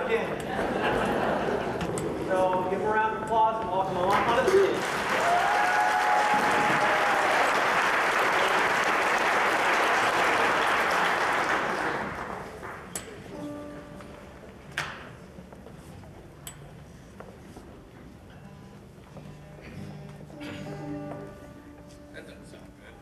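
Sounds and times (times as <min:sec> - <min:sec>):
audience applauding: 0:04.1 - 0:12.9.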